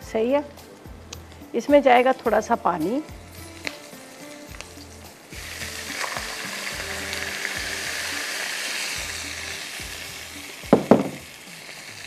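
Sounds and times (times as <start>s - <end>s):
water sizzling in hot oil: 2.4s - 12.0s.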